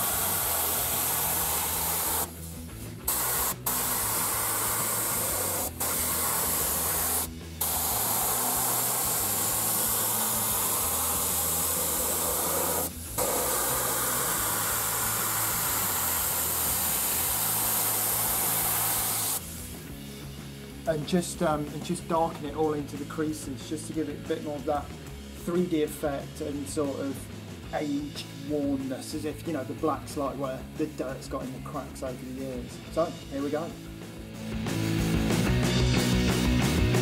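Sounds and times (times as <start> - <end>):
spray gun hissing: 0.0 - 19.8.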